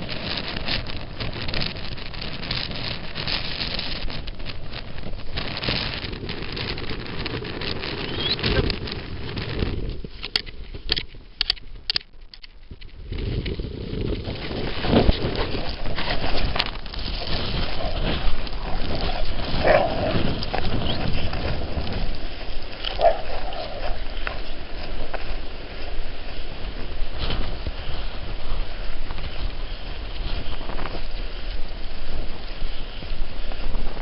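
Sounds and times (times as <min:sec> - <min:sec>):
wind buffeting microphone: 0:00.0 - 0:34.0
sharp clicks: 0:10.2 - 0:13.0.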